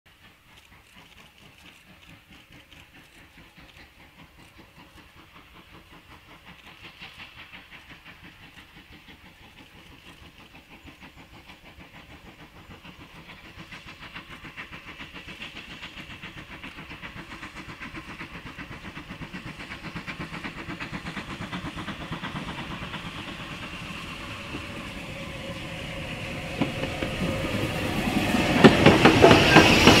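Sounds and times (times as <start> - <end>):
steam locomotives chuffing: 0.1 - 30.0.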